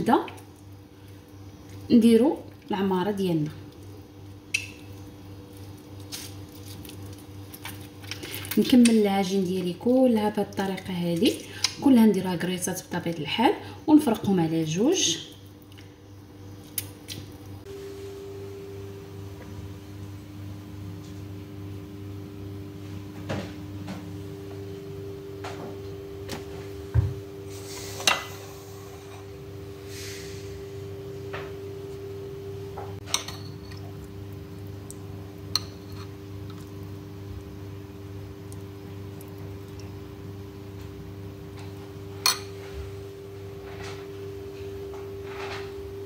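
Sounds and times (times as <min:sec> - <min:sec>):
low hum: 0:17.6 - 0:46.0
dishes and utensils clinking: 0:33.0 - 0:33.8.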